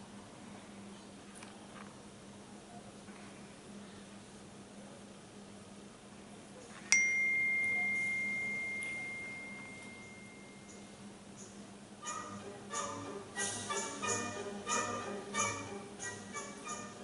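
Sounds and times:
bell-like chime: 0:06.9 - 0:10.8.

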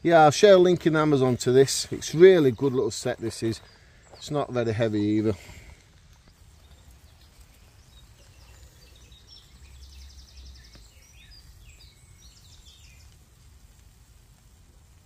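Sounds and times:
small bird singing: 0:00.7 - 0:05.4, 0:06.2 - 0:13.4.

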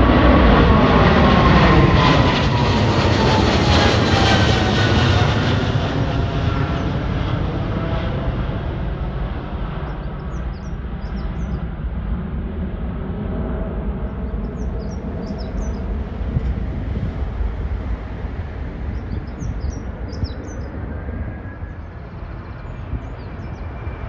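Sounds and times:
jet engines rumbling: 0:00.0 - 0:24.0
small birds chirping: 0:09.8 - 0:11.7, 0:14.1 - 0:16.0, 0:18.8 - 0:20.8, 0:21.7 - 0:24.0.

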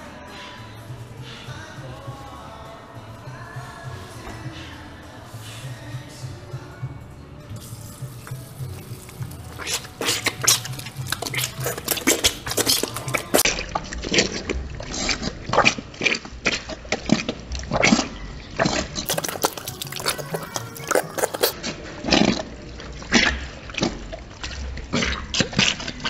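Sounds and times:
faucet water running into sink: 0:07.6 - 0:13.4, 0:19.0 - 0:21.6
hands rubbing and splashing: 0:07.6 - 0:26.0.

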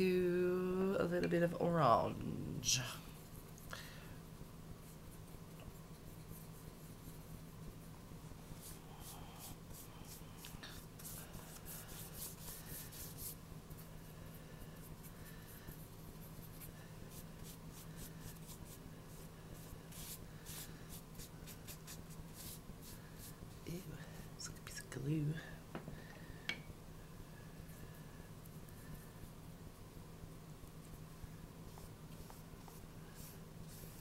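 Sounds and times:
steady low hum: 0:00.0 - 0:34.0
brush strokes on paper: 0:08.4 - 0:24.3, 0:31.6 - 0:34.0.

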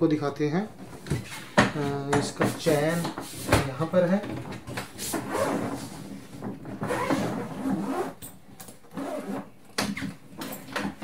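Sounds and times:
suitcase zip rasping open: 0:05.2 - 0:05.9, 0:06.7 - 0:08.3, 0:08.9 - 0:09.5.

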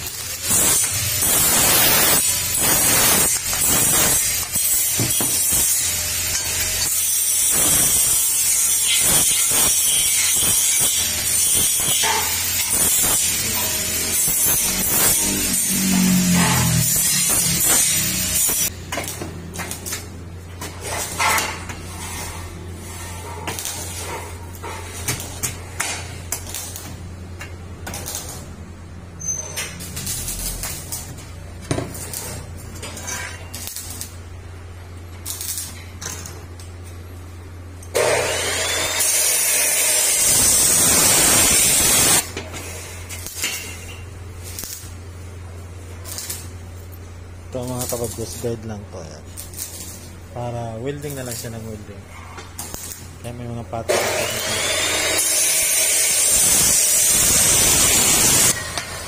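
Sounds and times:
welding arc crackling and hissing: 0:00.0 - 0:36.8, 0:37.9 - 0:59.0
loud noise: 0:14.2 - 0:18.7.

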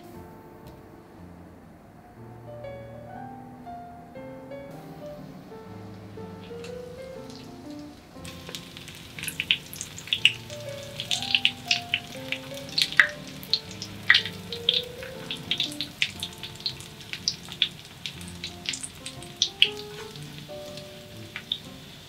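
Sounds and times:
soft piano music: 0:00.0 - 0:22.0
food sizzling in oil: 0:06.2 - 0:22.0.

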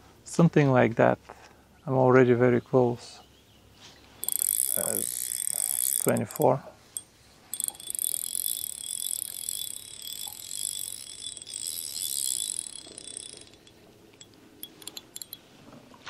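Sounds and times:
fishing reel whirring and clicking: 0:04.2 - 0:15.5
reel clicks: 0:04.2 - 0:15.5.

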